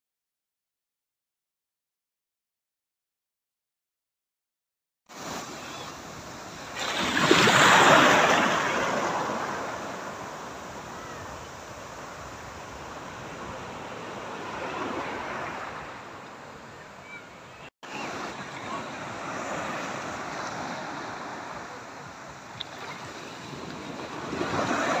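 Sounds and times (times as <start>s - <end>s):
sea waves washing in shallows: 5.1s - 25.0s.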